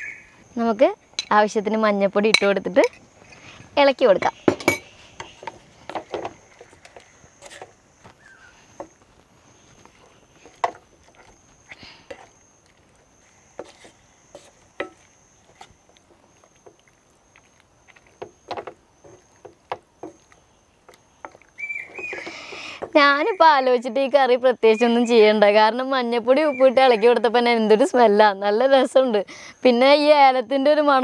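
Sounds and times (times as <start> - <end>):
wooden spatula scraping saucepan: 13.6 - 15.8.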